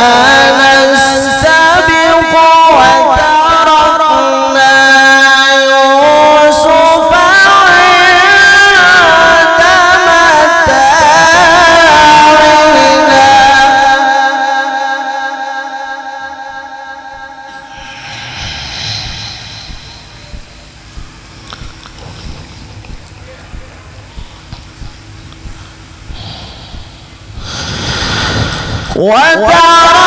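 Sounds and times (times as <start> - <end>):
man reciting melodically into a microphone: 0.0 - 18.0, 27.4 - 30.0.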